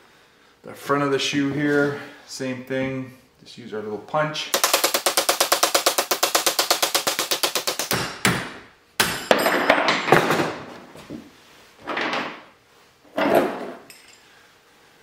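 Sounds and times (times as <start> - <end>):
hammer tapping steel punch: 4.6 - 9.5
metal pin clattering on floor: 13.8 - 14.2.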